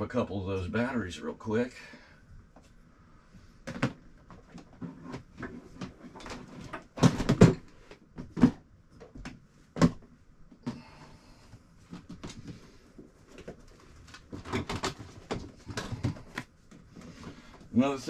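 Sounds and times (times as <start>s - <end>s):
hard objects knocking and clattering: 3.7s - 10.8s, 13.3s - 16.5s.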